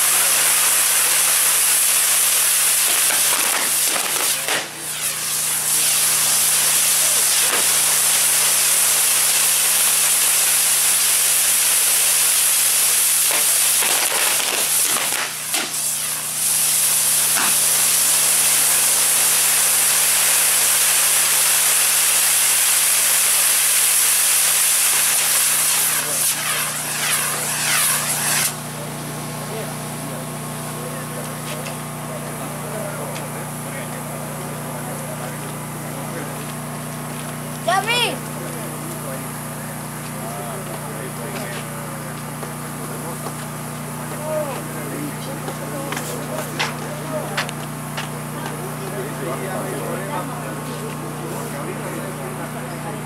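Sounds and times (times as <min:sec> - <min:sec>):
hiss of spark fountains: 0:00.0 - 0:28.6.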